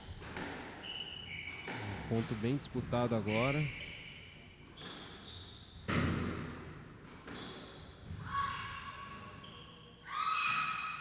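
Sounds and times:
racket striking squash ball: 0:00.0 - 0:00.9, 0:01.6 - 0:02.3, 0:05.8 - 0:07.6
sneakers squeaking on wood floor: 0:00.8 - 0:02.1, 0:03.1 - 0:06.0, 0:07.3 - 0:10.6.

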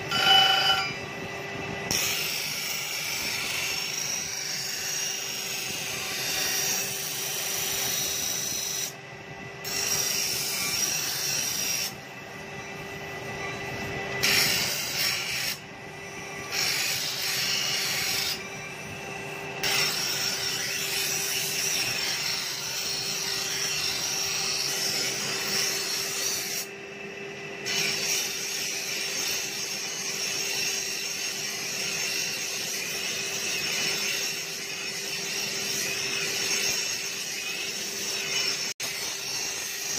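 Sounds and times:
grinding wheel humming: 0:00.0 - 0:08.4
steel blade grinding on stone: 0:00.1 - 0:01.0, 0:19.6 - 0:26.7, 0:27.6 - 0:39.9.

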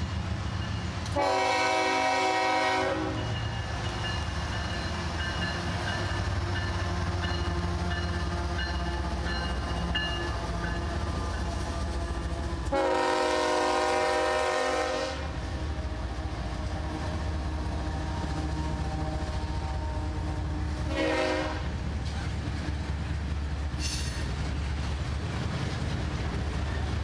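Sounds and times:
freight train rumbling past: 0:00.0 - 0:27.0
locomotive horn blasts: 0:01.1 - 0:03.3, 0:10.2 - 0:17.2, 0:18.1 - 0:21.7.

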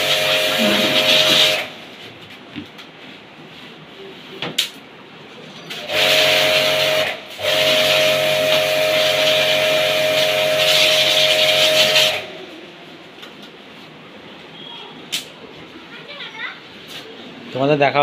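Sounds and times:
water spray hissing: 0:00.0 - 0:01.7
pressure washer motor hum: 0:00.0 - 0:01.9, 0:05.7 - 0:12.4.

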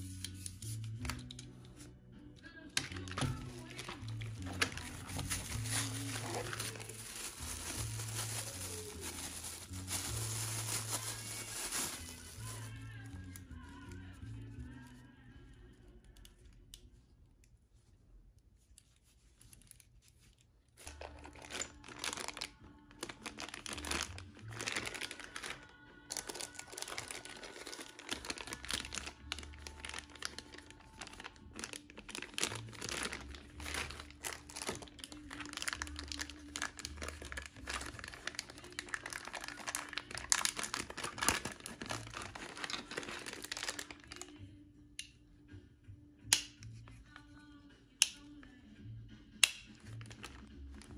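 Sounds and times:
plastic bags crinkling: 0:02.8 - 0:13.9, 0:19.5 - 0:44.4, 0:49.8 - 0:50.9.

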